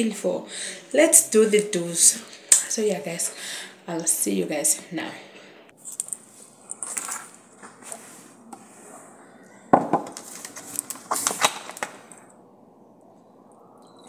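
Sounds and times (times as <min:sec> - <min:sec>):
object knocking on counter: 0:09.7 - 0:10.1.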